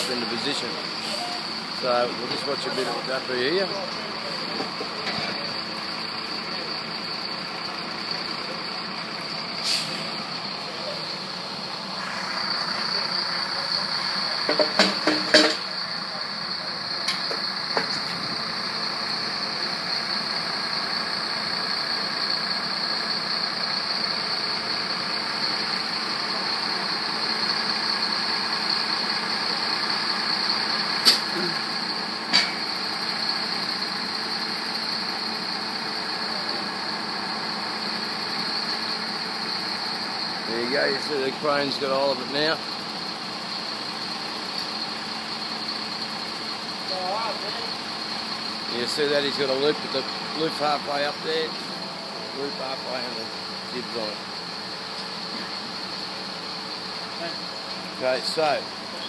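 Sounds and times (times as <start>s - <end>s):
crane engine running: 0.0s - 59.0s
sharp knocks: 14.5s - 15.6s.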